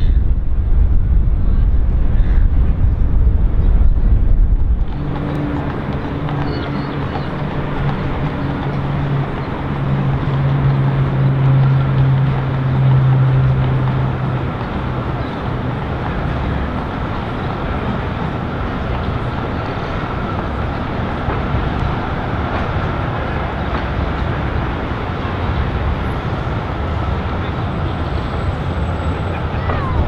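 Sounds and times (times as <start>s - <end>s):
city traffic rumble: 0.0s - 30.0s.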